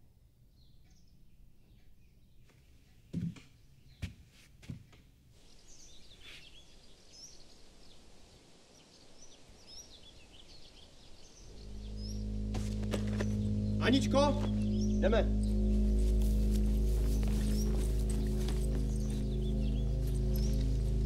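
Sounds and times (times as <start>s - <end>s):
birds chirping and singing: 5.4s - 8.1s, 8.7s - 21.0s
low music: 11.4s - 21.0s.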